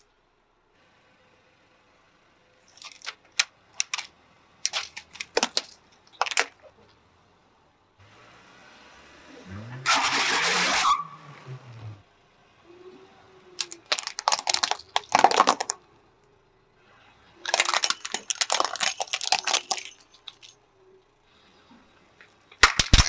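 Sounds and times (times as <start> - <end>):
tyre crushing plastic: 2.7 - 6.7, 13.6 - 15.8, 17.4 - 20.5, 22.6 - 23.0
plastic cracking and snapping: 2.8 - 6.6, 13.6 - 15.8, 17.4 - 20.5, 22.6 - 23.0.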